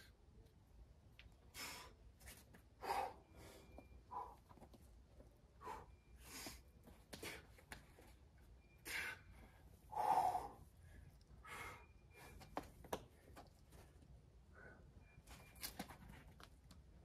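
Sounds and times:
person breathing hard: 0:02.8 - 0:04.4, 0:08.8 - 0:12.4.

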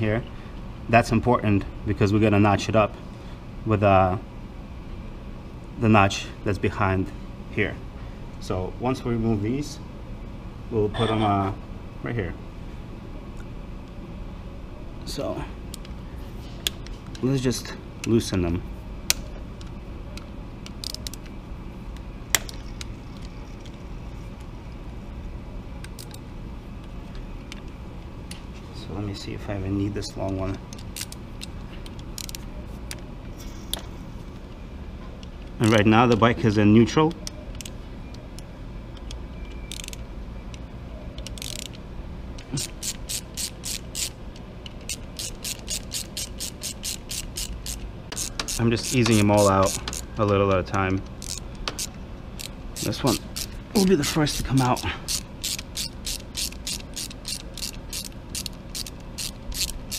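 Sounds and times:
low background hum: 0:00.0 - 0:59.9
ratcheting driver clicking: 0:20.6 - 0:21.3, 0:30.3 - 0:32.4, 0:39.7 - 0:40.0, 0:41.2 - 0:41.8, 0:42.4 - 0:59.9.

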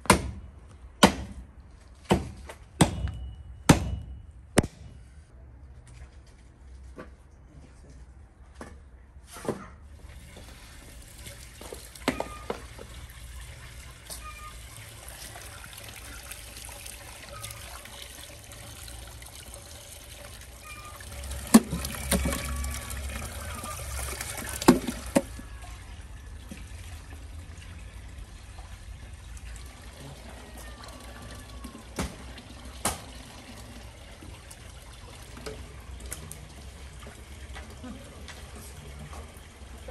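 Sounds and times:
water splashing and trickling: 0:09.8 - 0:39.9.

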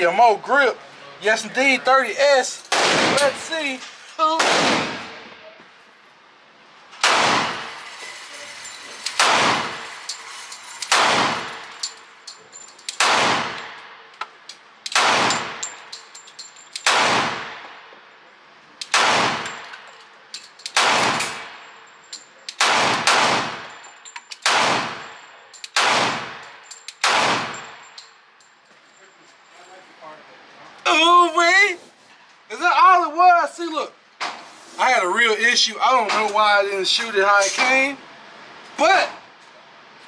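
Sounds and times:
pistol shots echoing indoors: 0:04.4 - 0:05.2, 0:09.2 - 0:09.8, 0:10.9 - 0:11.5, 0:13.0 - 0:13.8, 0:14.9 - 0:15.7, 0:16.8 - 0:17.9, 0:18.8 - 0:19.6, 0:20.7 - 0:21.6, 0:22.5 - 0:23.6, 0:24.4 - 0:25.1, 0:25.7 - 0:26.4, 0:27.0 - 0:27.7
light metallic clinks: 0:11.6 - 0:13.0, 0:15.3 - 0:16.8, 0:19.4 - 0:22.6, 0:23.6 - 0:24.4, 0:26.4 - 0:30.0.

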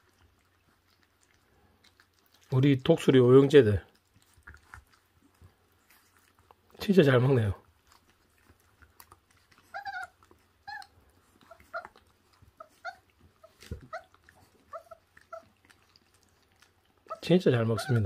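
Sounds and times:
faint chewing clicks: 0:00.0 - 0:18.0
puppies whimpering: 0:08.4 - 0:18.0.

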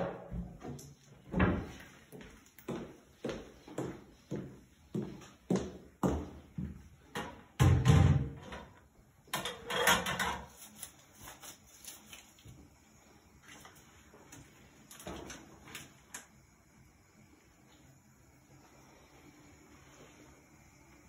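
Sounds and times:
dishes clattering: 0:09.4 - 0:10.5.

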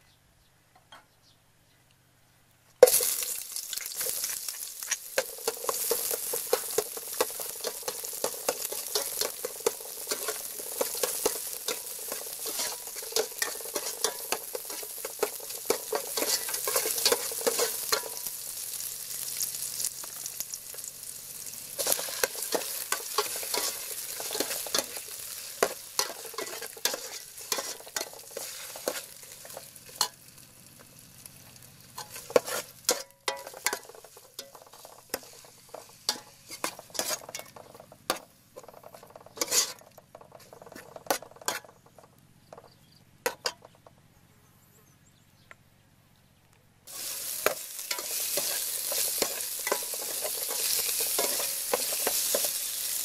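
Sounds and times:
aromatics sizzling in oil: 0:02.8 - 0:41.9, 0:46.9 - 0:53.0
metal ladle scraping pot: 0:05.2 - 0:18.2, 0:21.8 - 0:30.2, 0:32.0 - 0:41.8.

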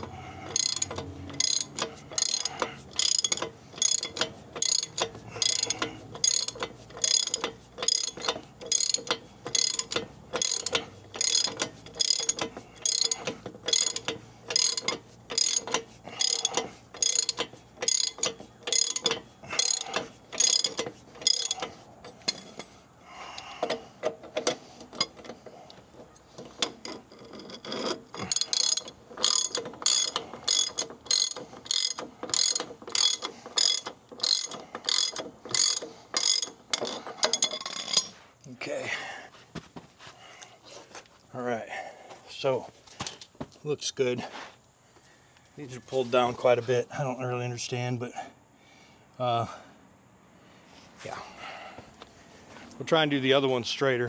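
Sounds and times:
ratchet wrench strokes: 0:00.0 - 0:22.7, 0:26.6 - 0:38.2.

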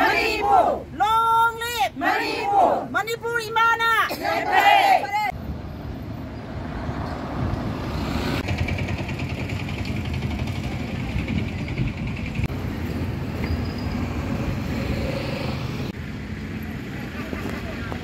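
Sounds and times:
fast engine rattling: 0:08.4 - 0:12.5
vehicle engine running: 0:08.4 - 0:12.9.

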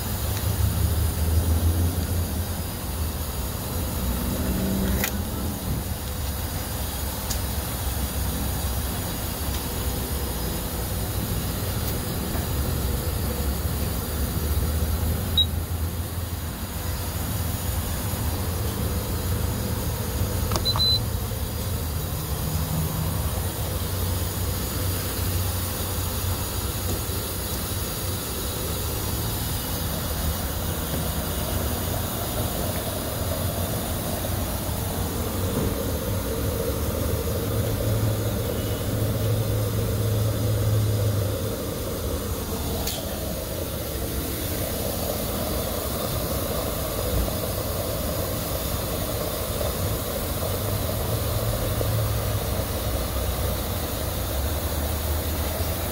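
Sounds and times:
gas pump hissing and humming: 0:00.0 - 0:55.9
pump click: 0:04.8 - 0:05.3, 0:20.4 - 0:21.0.

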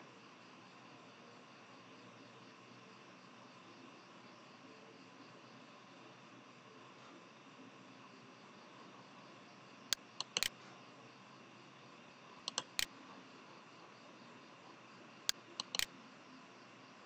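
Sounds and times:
computer mouse buttons clicking: 0:09.9 - 0:10.5, 0:12.5 - 0:12.9, 0:15.3 - 0:15.9.

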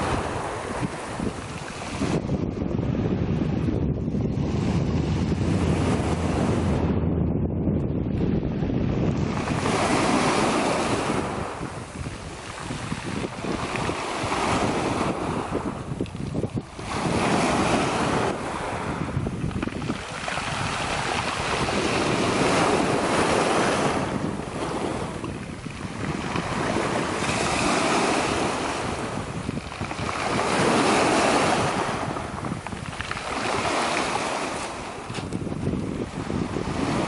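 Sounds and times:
small waves breaking on pebbles: 0:16.2 - 0:35.4.

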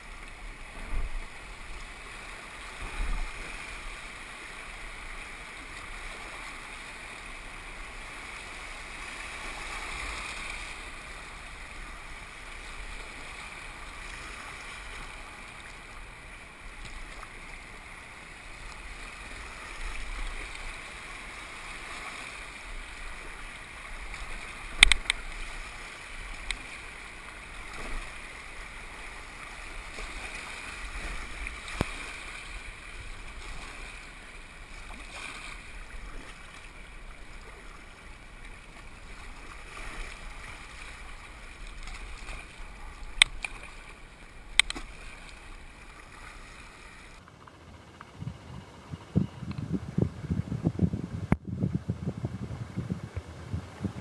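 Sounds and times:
water around paddling kayaks: 0:00.0 - 0:54.0.

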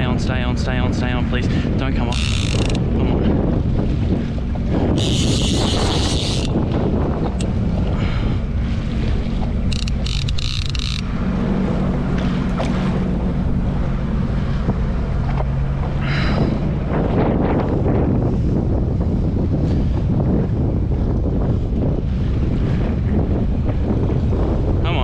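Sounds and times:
jet ski engine hum: 0:00.0 - 0:25.0
wind buffeting microphone: 0:00.0 - 0:25.0
fishing reel buzzing: 0:02.0 - 0:03.1, 0:04.9 - 0:06.7, 0:09.6 - 0:11.2.

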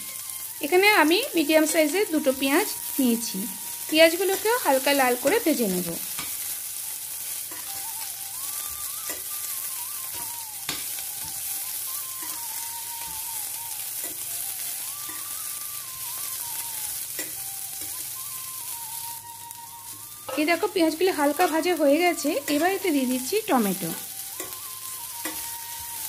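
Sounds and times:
onions sizzling in a pan: 0:00.0 - 0:26.0
metal spatula scraping a pan: 0:06.1 - 0:06.6, 0:07.2 - 0:07.8, 0:08.8 - 0:11.6, 0:20.3 - 0:23.2.

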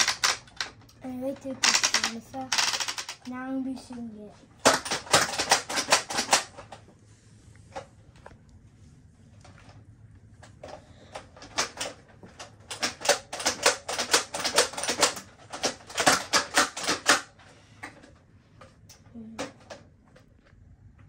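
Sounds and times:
toy dart blaster clacking: 0:00.0 - 0:00.7, 0:01.6 - 0:03.3.

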